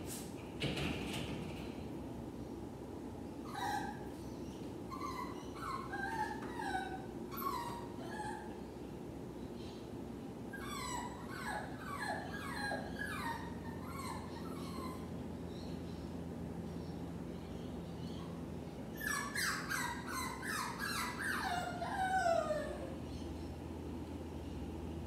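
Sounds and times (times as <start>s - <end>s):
dog whining and whimpering: 3.4s - 8.7s, 10.5s - 15.4s, 18.0s - 23.2s.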